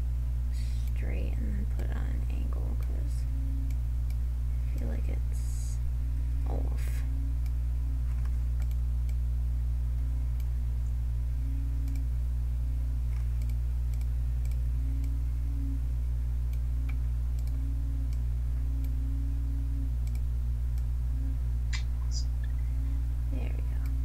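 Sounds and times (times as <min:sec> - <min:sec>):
low electrical hum: 0:00.0 - 0:24.0
computer mouse clicking: 0:08.2 - 0:09.2, 0:11.8 - 0:12.1, 0:13.1 - 0:15.2, 0:16.5 - 0:18.2, 0:20.0 - 0:20.2.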